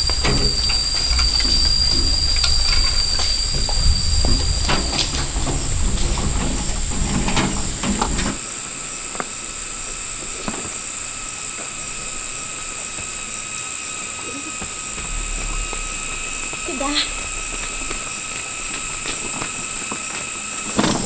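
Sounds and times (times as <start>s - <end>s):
low rumble: 0.0s - 8.2s, 14.9s - 19.8s
high-pitched insect chorus: 0.0s - 21.0s.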